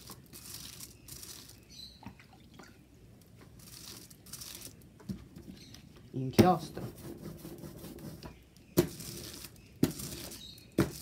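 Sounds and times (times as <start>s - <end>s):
sponge rubbing on foil: 0.0s - 1.6s, 3.6s - 4.8s.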